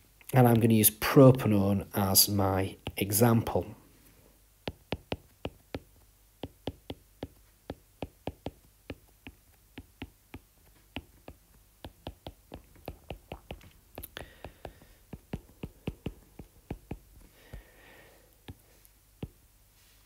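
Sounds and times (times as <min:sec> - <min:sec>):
stylus tapping on glass screen: 0:04.6 - 0:17.7.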